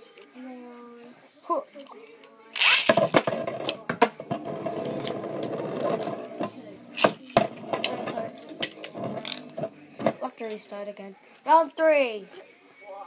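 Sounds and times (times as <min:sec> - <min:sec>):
spinning top launcher rip: 0:02.6 - 0:03.0.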